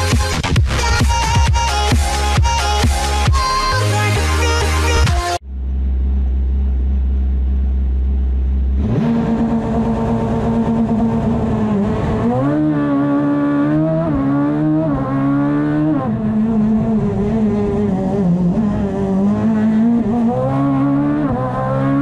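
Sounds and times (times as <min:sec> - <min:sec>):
racing car engine revving: 0:04.9 - 0:22.0.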